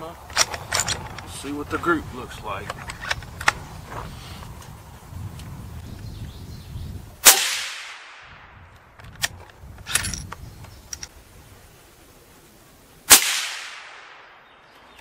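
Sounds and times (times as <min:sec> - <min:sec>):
suppressed rifle shots: 0:07.2 - 0:08.4, 0:13.1 - 0:14.4.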